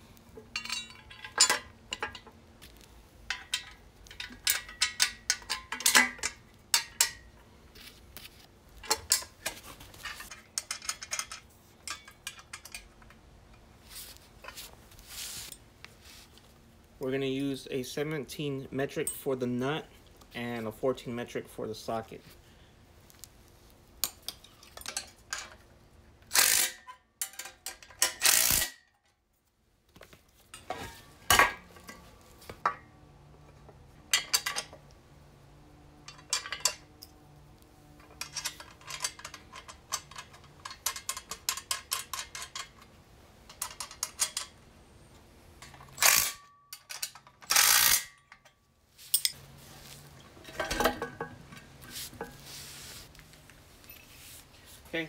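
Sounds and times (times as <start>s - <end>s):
metal tools clinking on bracket: 0.4s - 2.4s, 3.2s - 7.4s, 8.8s - 13.6s, 24.0s - 25.7s, 26.3s - 29.0s, 30.5s - 34.9s, 35.9s - 44.6s, 45.6s - 52.4s
rapid ratchet clicking: 28.2s - 28.7s, 47.5s - 48.0s.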